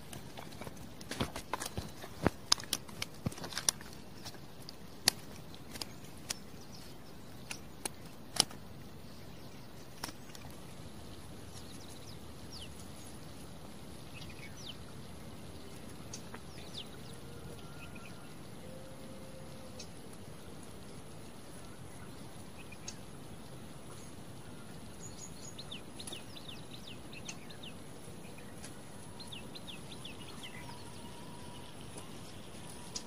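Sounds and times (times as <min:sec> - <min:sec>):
faint bird chirps: 0:23.9 - 0:33.0.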